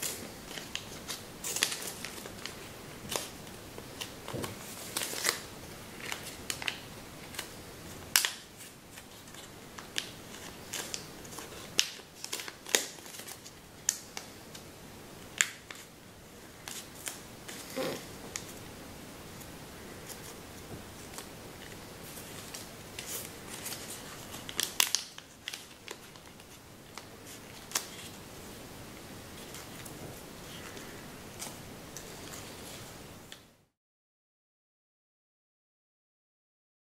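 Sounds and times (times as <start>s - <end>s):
paper crackling and snapping: 0.0s - 14.7s, 16.6s - 18.6s, 19.4s - 28.2s.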